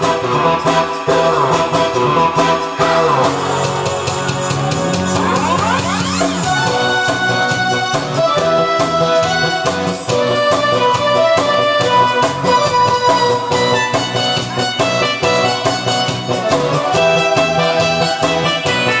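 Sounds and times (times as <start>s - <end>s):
trot backing track with beat: 0.0s - 19.0s.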